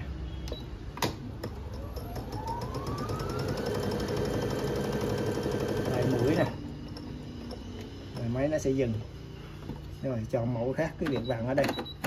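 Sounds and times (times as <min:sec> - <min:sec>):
sewing machine motor whine: 0:01.7 - 0:07.9.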